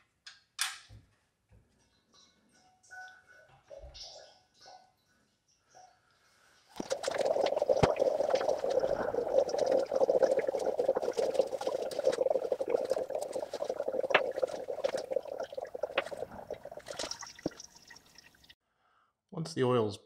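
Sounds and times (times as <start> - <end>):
oil pouring into drain pan: 6.8 - 18.5.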